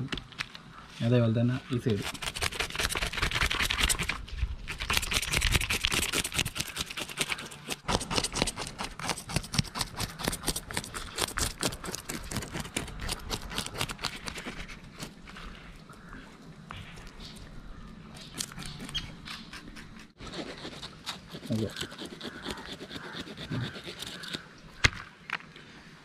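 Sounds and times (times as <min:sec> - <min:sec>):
knife scraping fish scales: 0:18.3 - 0:24.4.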